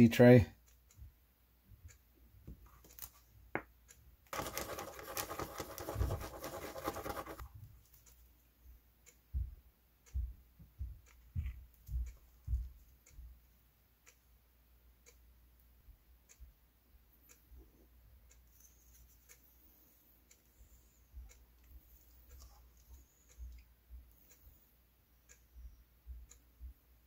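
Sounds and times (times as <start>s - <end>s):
tool scratching on paper: 4.3s - 7.5s
soft bumps and taps: 10.2s - 13.3s.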